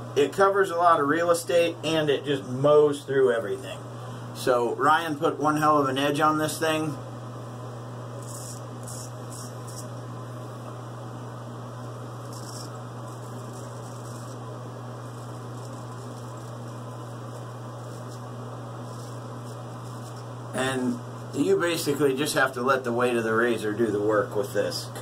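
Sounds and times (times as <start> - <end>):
steady low hum: 0.0 - 25.0
straight razor scraping stubble: 8.2 - 10.0, 12.1 - 20.4.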